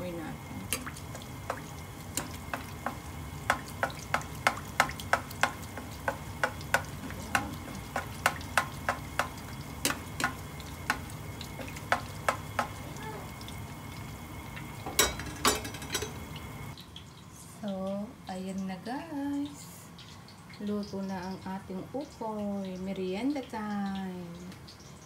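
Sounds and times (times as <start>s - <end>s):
food frying in hot oil: 0.0s - 25.0s
oil crackling and popping: 0.7s - 15.5s.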